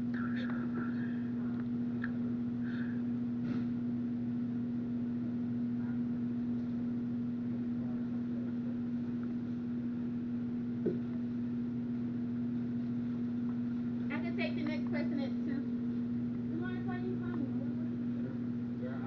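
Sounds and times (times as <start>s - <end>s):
steady low hum: 0.0s - 19.0s
brief knock: 10.8s - 11.1s.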